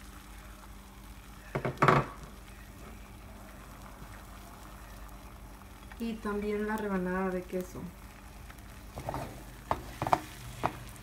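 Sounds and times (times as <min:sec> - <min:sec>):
food frying faintly: 0:00.0 - 0:11.0
kitchenware clattering: 0:01.6 - 0:02.2, 0:09.0 - 0:10.8.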